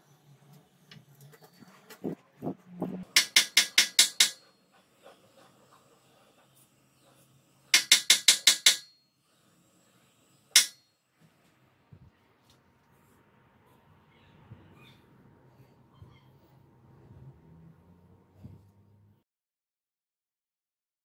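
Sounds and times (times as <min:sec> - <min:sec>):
steel rod knocking on steel table: 0:03.1 - 0:04.4, 0:07.8 - 0:08.9, 0:10.6 - 0:10.8.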